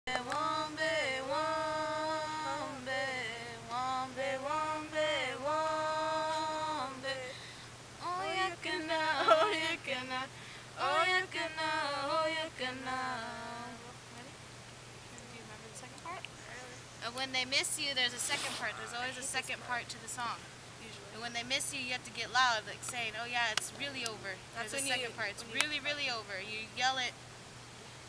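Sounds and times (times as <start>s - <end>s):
girls singing unaccompanied: 0.0s - 14.2s.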